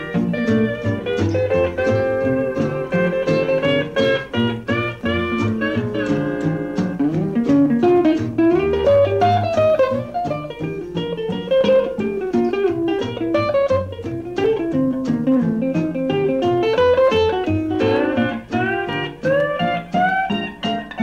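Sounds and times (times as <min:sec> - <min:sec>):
plucked electric guitar lead: 0:00.0 - 0:21.0
steady rock beat: 0:00.0 - 0:21.0.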